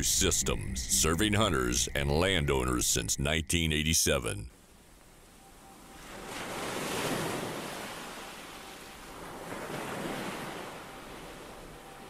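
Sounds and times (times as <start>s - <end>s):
sea waves surf: 4.6s - 12.0s.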